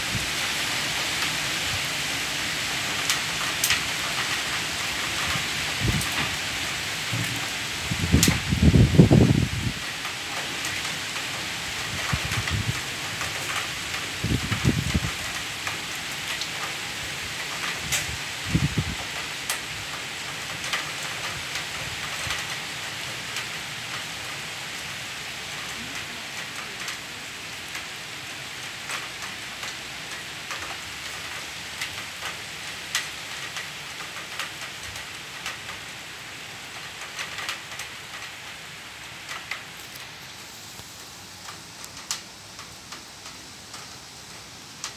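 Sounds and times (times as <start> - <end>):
heavy rain falling: 0.0 - 44.9
raindrops ticking on surfaces: 0.0 - 44.9
thunder rumbles: 7.0 - 9.8.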